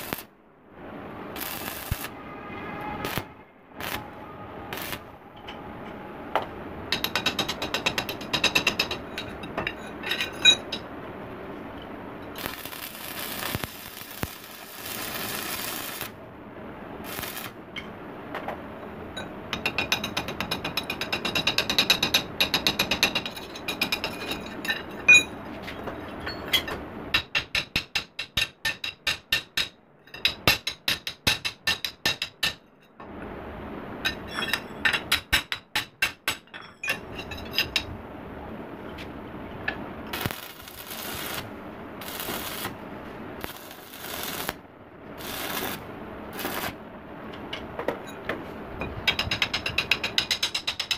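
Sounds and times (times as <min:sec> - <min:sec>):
arc welding crackling and hissing: 0:00.0 - 0:00.3, 0:01.0 - 0:02.2, 0:03.0 - 0:05.2, 0:07.0 - 0:16.3, 0:16.9 - 0:17.9, 0:38.8 - 0:46.8.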